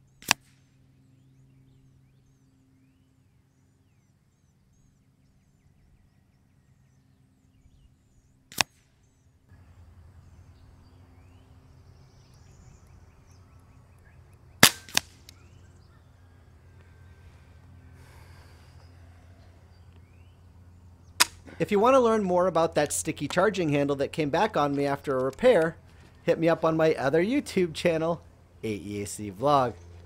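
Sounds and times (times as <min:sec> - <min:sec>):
air rifle shots: 0:00.2 - 0:00.7, 0:08.5 - 0:08.9, 0:14.6 - 0:15.5, 0:21.2 - 0:21.6
quieter crack: 0:00.2 - 0:00.7, 0:08.5 - 0:08.9, 0:13.9 - 0:15.6, 0:21.2 - 0:22.3.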